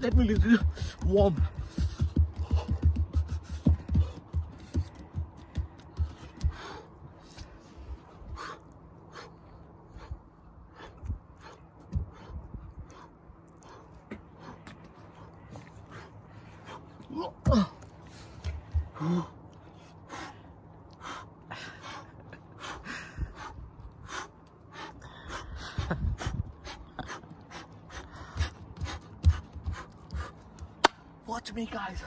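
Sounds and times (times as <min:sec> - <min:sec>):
man breathing forcefully: 0:00.4 - 0:30.8
man grunting: 0:17.1 - 0:17.8.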